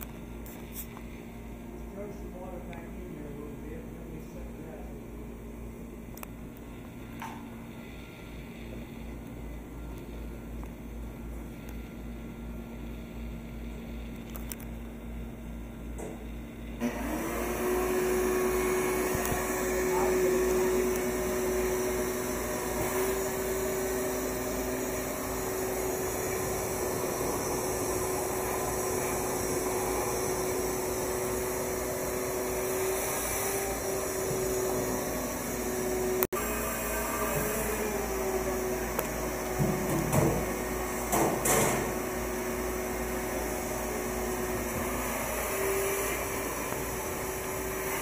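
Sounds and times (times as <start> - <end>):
shop vacuum motor whining: 16.0 - 48.0
vacuum hose scraping oven floor: 16.8 - 42.5.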